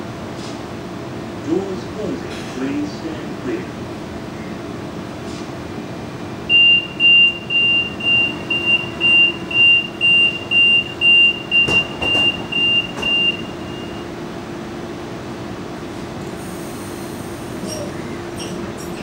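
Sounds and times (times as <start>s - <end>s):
train carriage hum: 0.0s - 19.0s
train door warning beeps: 6.5s - 14.2s
clunks: 11.5s - 13.4s.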